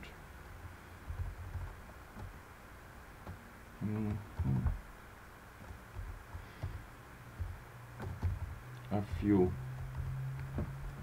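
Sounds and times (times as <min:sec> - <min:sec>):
computer keyboard keystrokes: 0:07.4 - 0:10.6.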